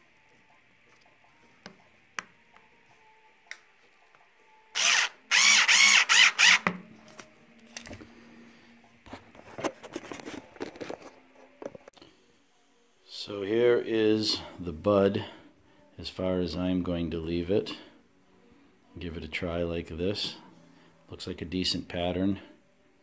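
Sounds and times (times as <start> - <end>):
cordless drill motor whine: 4.8 - 6.7.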